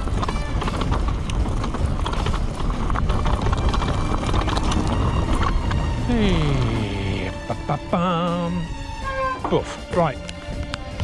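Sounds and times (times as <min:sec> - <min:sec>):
bike knocks and rattles: 0:00.0 - 0:05.9
wind noise on microphone: 0:00.0 - 0:07.8
steady rumble: 0:00.0 - 0:11.0.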